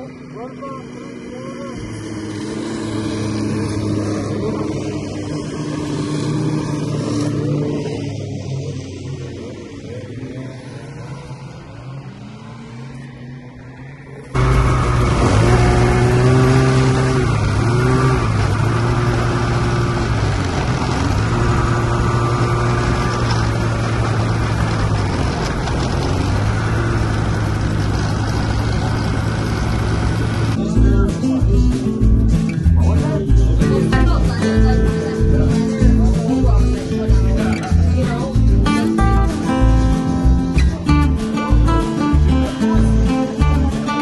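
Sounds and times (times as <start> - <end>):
snowmobile engine running: 0.0 - 11.4, 14.4 - 30.6.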